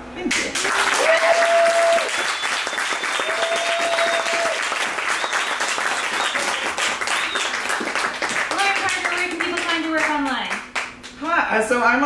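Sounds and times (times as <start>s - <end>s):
audience applauding: 0.5s - 11.1s
people whooping: 0.7s - 7.9s
high whistle: 1.4s - 7.7s.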